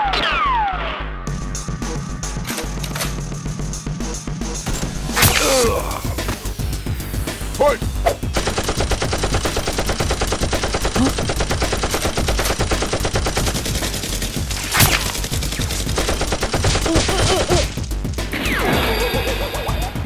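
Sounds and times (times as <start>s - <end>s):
machine-gun fire: 8.3s - 17.9s.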